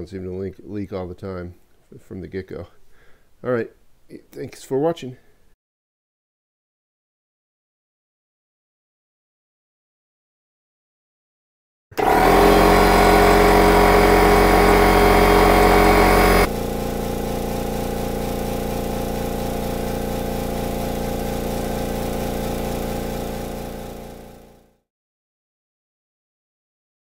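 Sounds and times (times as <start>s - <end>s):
quiet air compressor pumping: 12.0s - 24.7s
loud air compressor running: 12.0s - 24.8s.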